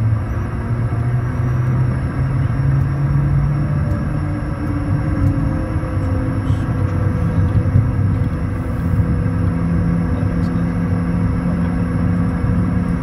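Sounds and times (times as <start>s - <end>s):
jet engines whining: 0.0s - 13.0s
wheels rumbling on runway: 0.0s - 13.0s.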